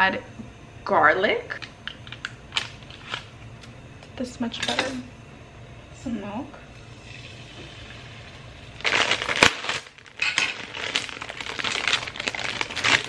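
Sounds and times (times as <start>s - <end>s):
plastic packet crinkling: 8.8s - 13.0s.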